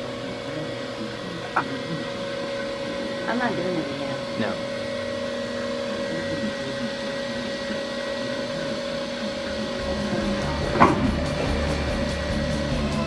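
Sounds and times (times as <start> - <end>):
machine hum with whine: 0.0 - 13.0.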